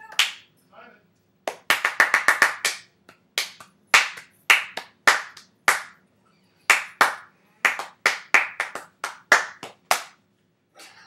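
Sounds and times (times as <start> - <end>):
hands clapping a rhythm: 0.0 - 0.5, 1.4 - 6.0, 6.7 - 10.2.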